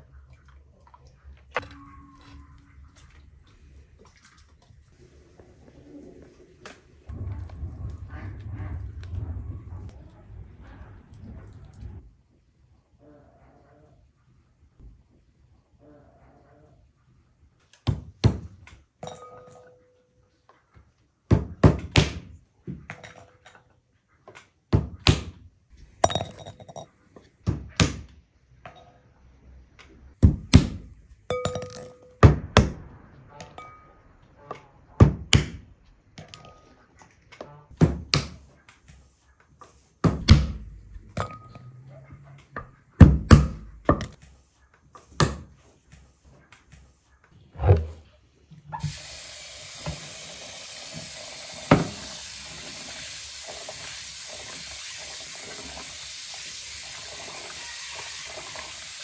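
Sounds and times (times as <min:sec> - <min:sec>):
glass ringing: 0:19.0 - 0:20.2, 0:31.3 - 0:32.4, 0:33.6 - 0:34.0.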